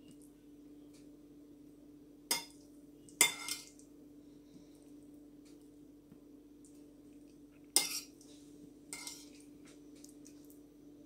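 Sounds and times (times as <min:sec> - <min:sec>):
faint steady hum: 0:00.0 - 0:11.0
metal spoon clinking on plate: 0:03.2 - 0:03.7, 0:07.8 - 0:08.1, 0:09.0 - 0:09.4.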